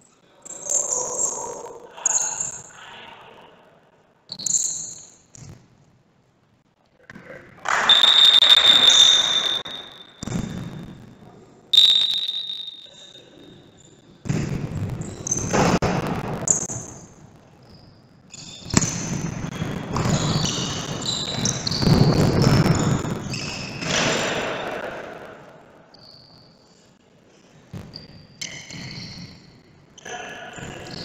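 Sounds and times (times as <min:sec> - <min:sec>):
referee's whistle: 0:07.7 - 0:10.3, 0:11.7 - 0:13.2
sneakers squeaking on court floor: 0:07.9 - 0:10.3, 0:19.9 - 0:24.4.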